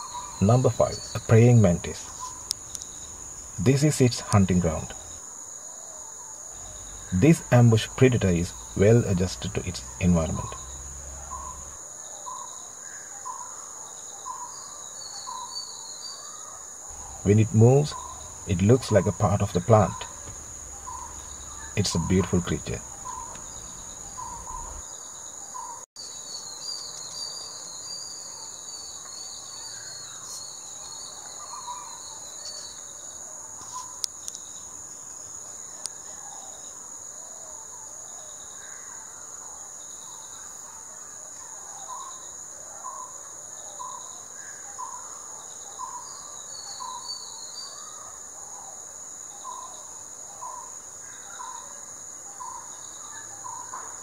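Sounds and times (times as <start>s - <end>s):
high twittering: 0.0s - 5.2s, 6.5s - 11.8s, 16.9s - 24.8s
short chirping calls: 0.0s - 5.2s, 6.5s - 12.5s, 16.9s - 32.9s
insect chorus trilling: 0.0s - 54.0s.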